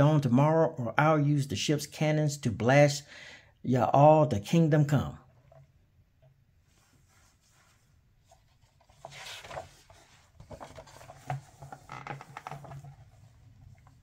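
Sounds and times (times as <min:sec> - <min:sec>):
book page rustling: 0:06.7 - 0:14.0
paper crinkles and taps: 0:08.4 - 0:14.0.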